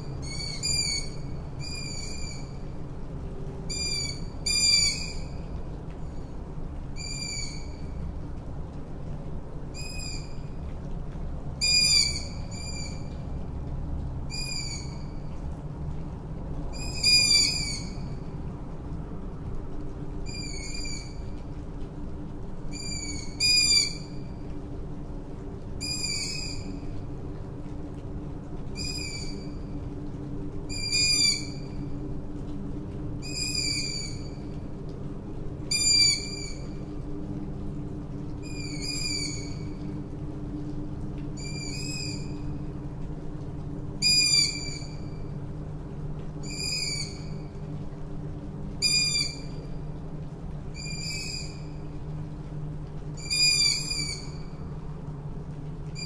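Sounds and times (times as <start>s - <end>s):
light rain: 0.0s - 56.0s
steady low hum: 24.0s - 56.0s
owl calling: 35.7s - 36.7s, 38.4s - 39.7s, 44.0s - 45.0s, 46.4s - 47.4s, 48.8s - 49.5s, 50.8s - 51.7s, 53.2s - 54.6s.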